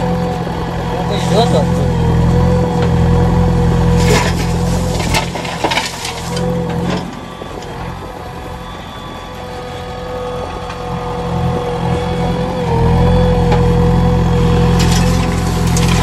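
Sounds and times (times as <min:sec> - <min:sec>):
diesel engines running: 0:00.0 - 0:16.0
soil and stones dumped into trolley: 0:04.0 - 0:07.1, 0:14.8 - 0:16.0.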